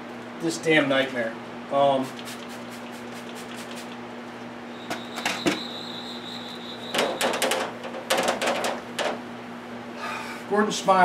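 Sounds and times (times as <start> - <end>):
steady low hum: 0.0 - 11.0
marker squeak: 4.7 - 7.6.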